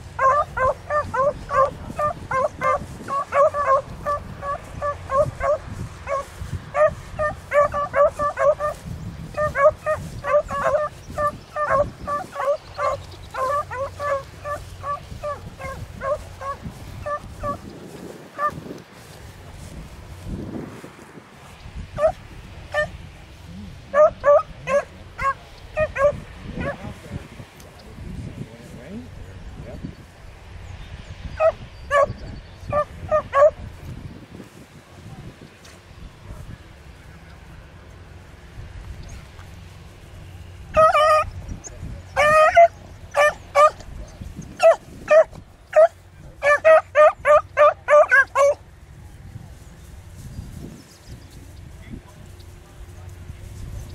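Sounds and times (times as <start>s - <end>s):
dogs baying and barking: 0.0s - 17.7s, 18.3s - 18.7s, 22.0s - 23.0s, 23.6s - 26.8s, 31.4s - 33.6s, 40.7s - 48.7s.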